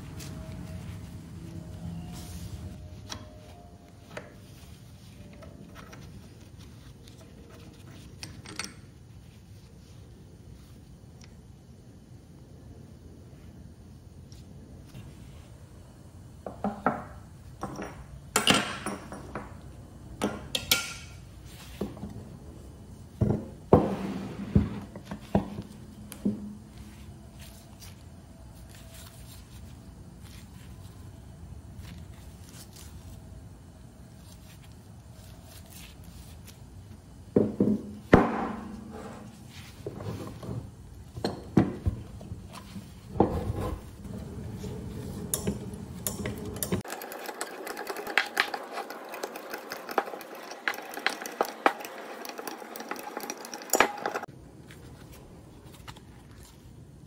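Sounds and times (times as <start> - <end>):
metal parts knocking and clinking: 8.2 - 8.9, 45.4 - 54.3.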